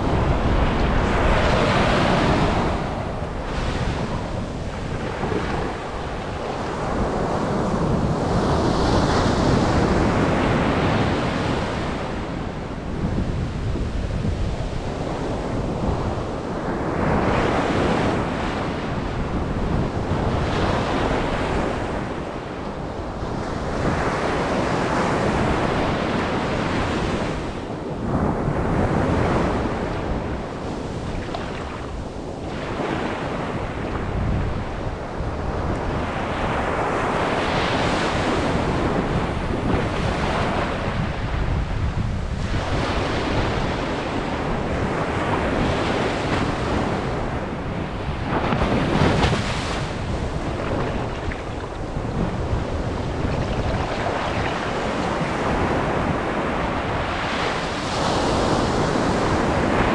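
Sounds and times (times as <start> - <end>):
wind rumbling on microphone: 0.0 - 59.9
ocean surf breaking: 28.3 - 59.9.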